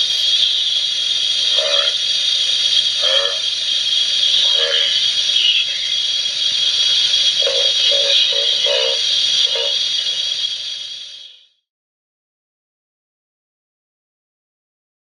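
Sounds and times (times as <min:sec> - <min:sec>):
steady loud hiss: 0:00.0 - 0:11.4.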